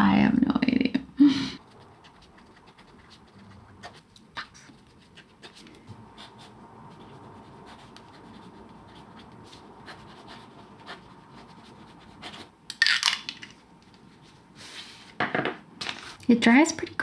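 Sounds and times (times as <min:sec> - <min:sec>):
pen nib scratching on paper: 0:01.6 - 0:12.5.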